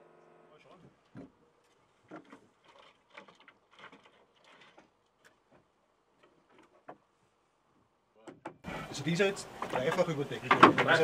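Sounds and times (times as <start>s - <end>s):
wood shingles knocking and scraping: 1.1s - 7.1s, 9.6s - 11.0s.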